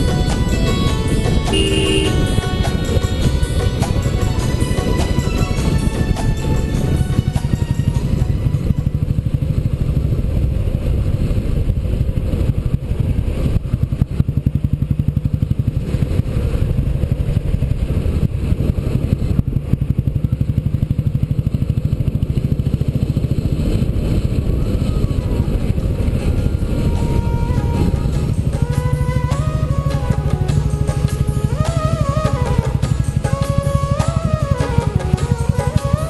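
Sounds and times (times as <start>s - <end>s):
motorcycle engine cruising: 0.0s - 36.0s.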